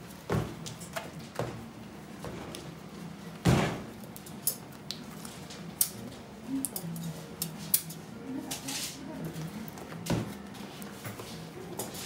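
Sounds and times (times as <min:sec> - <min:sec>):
heavy thump on work table: 0:03.4 - 0:03.8.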